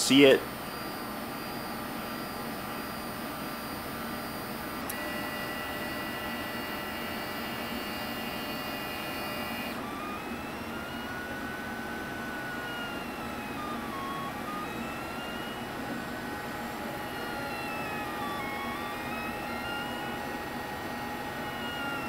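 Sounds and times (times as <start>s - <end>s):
printer stepper motors whining: 0.0s - 22.0s.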